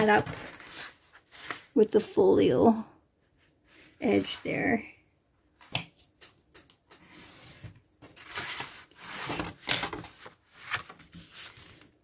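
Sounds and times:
stiff paper rustling and scraping: 0:00.0 - 0:01.8, 0:07.0 - 0:12.0.

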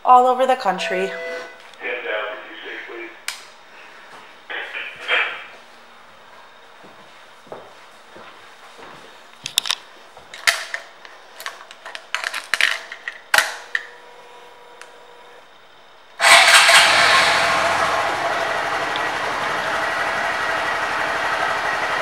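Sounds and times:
motorcycle engine starting and running: 0:16.2 - 0:22.0.

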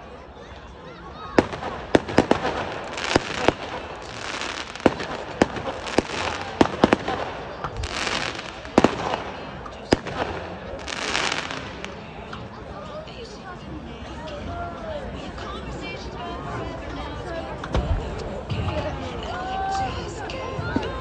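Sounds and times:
fireworks bangs: 0:01.3 - 0:12.3
fireworks crackling hiss: 0:01.4 - 0:12.3.

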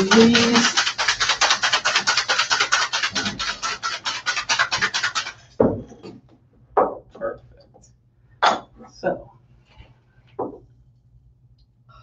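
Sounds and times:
ice rattling in cocktail shaker: 0:00.0 - 0:05.6.

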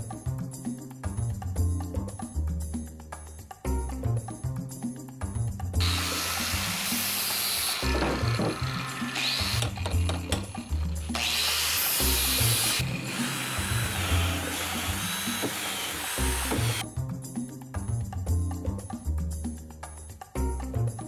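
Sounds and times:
background music with bass beat: 0:00.0 - 0:06.1, 0:16.2 - 0:21.0
angle grinder grinding steel: 0:05.8 - 0:16.8
drill drilling holes: 0:05.8 - 0:16.8.

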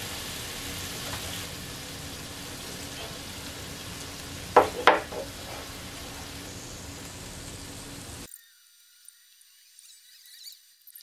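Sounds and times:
meat sizzling on a grill pan: 0:00.0 - 0:08.3.

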